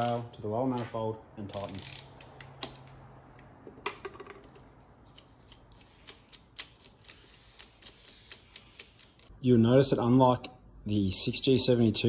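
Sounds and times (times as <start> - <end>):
hand ratchet clicking: 1.5 - 2.8.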